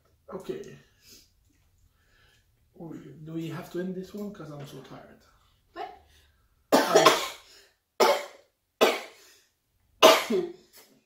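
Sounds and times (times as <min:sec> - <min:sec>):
woman coughing: 0:06.8 - 0:09.2, 0:10.0 - 0:10.6.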